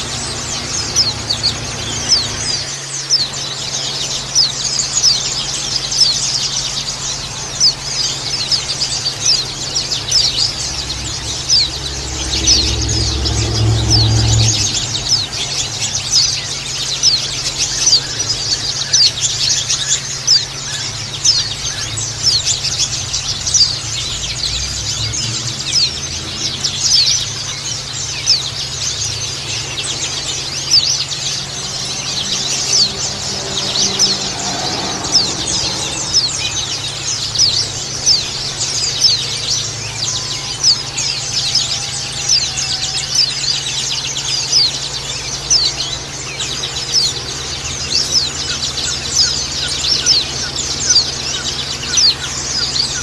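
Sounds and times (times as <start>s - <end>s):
flock of birds chirping: 0.0s - 53.0s
low rumble: 8.9s - 16.6s.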